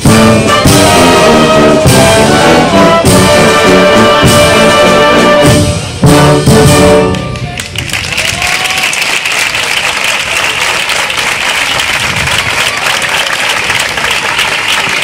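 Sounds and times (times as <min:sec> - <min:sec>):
brass concert band playing: 0:00.0 - 0:07.7
audience applause: 0:07.4 - 0:15.0.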